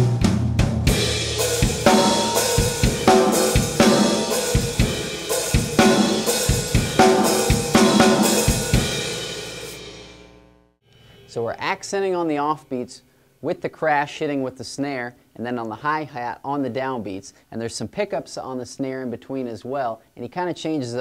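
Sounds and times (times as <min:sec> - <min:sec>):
drum kit groove: 0:00.0 - 0:10.4
cymbals ringing: 0:01.0 - 0:10.0.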